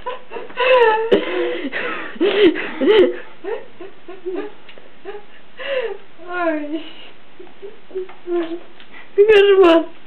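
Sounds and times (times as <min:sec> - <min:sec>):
person laughing: 0:00.0 - 0:05.3, 0:07.4 - 0:08.6.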